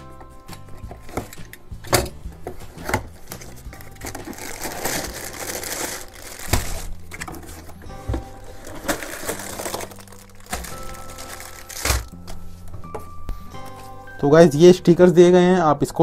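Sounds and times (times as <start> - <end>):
plastic packaging crinkling: 3.2 - 12.4.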